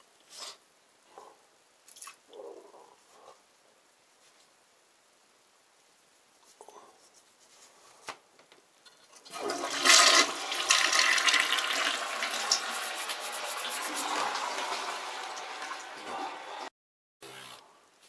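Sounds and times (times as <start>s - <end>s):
water rushing: 9.3s - 16.7s.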